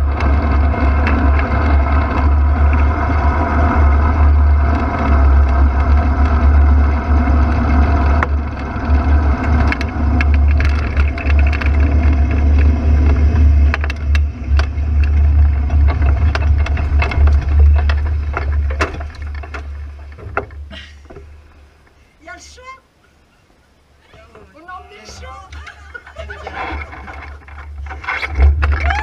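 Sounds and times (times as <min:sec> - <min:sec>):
wind rumble on microphone: 0:00.0 - 0:20.8, 0:25.8 - 0:29.0
clicks and knocks: 0:09.6 - 0:21.3.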